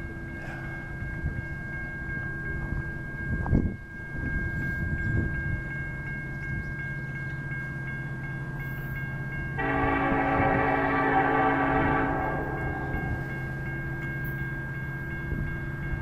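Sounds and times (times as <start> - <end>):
railroad crossing bell ringing: 0.0 - 16.0
locomotive horn: 9.6 - 13.6.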